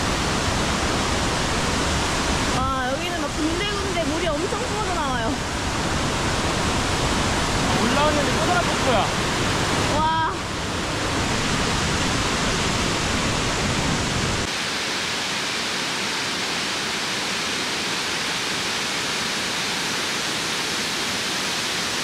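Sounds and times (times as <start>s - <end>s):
waterfalls rushing: 0.0s - 22.0s.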